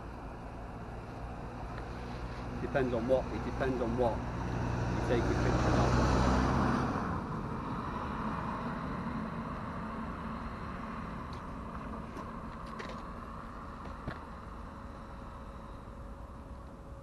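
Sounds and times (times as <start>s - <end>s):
car driving past: 1.6s - 15.1s.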